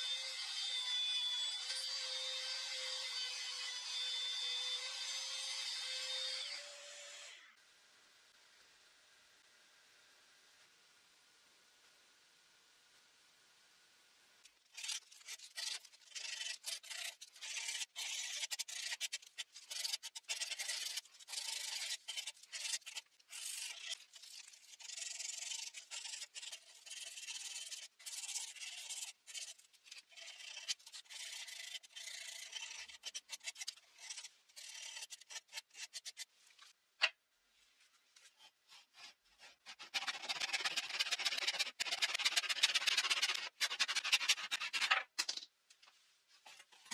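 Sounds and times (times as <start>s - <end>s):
hand-sanding wood: 38.7s - 44.9s
handsaw cutting wood: 38.7s - 45.0s.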